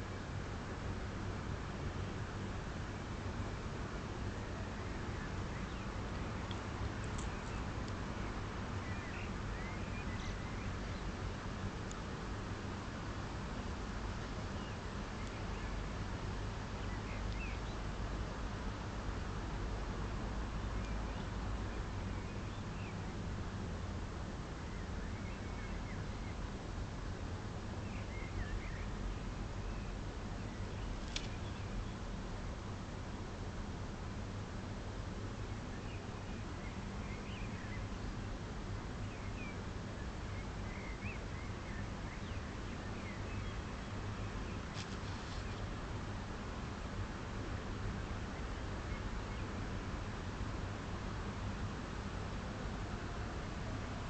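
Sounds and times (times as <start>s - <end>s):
low city rumble: 0.0s - 54.0s
steady hiss and hum: 0.0s - 54.0s
faint bird chirps: 4.4s - 11.3s, 14.5s - 15.8s, 24.6s - 26.5s, 27.8s - 32.0s, 35.5s - 38.2s, 39.0s - 45.7s.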